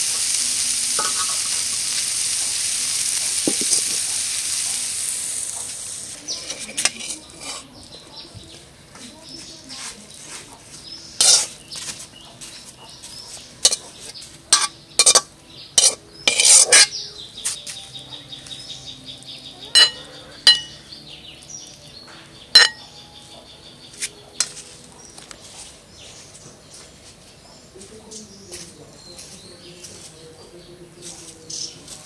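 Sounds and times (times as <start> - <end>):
metal spatula scraping a pan: 1.0 - 2.0, 6.2 - 7.8, 11.2 - 11.9, 13.6 - 17.0, 19.8 - 20.8, 22.6 - 22.8.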